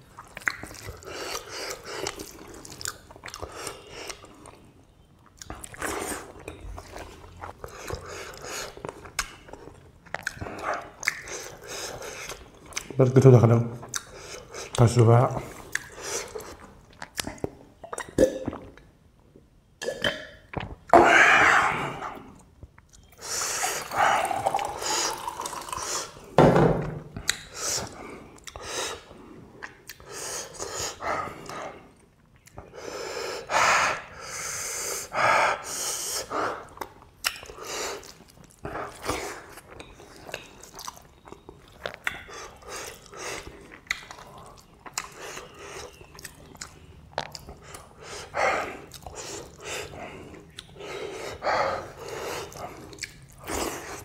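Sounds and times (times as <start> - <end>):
wet chewing of food: 0.0 - 13.0, 36.6 - 54.0
lip smacks: 0.2 - 4.3, 7.7 - 12.9, 15.7 - 18.9, 27.2 - 31.6, 36.2 - 48.2, 48.8 - 54.0
person breathing: 32.7 - 36.7, 47.6 - 52.9.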